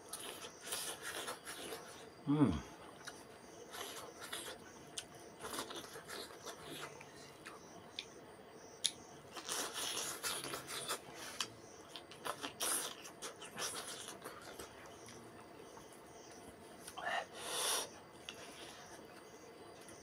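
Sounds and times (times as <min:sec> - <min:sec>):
person chewing: 0:00.1 - 0:02.1, 0:03.0 - 0:07.0, 0:08.8 - 0:15.2.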